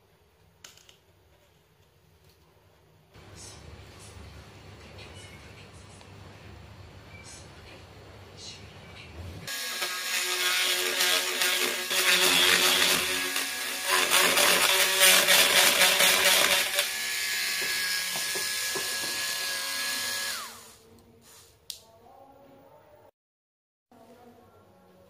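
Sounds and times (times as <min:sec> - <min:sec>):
rotary tool drilling wood: 0:09.5 - 0:20.8.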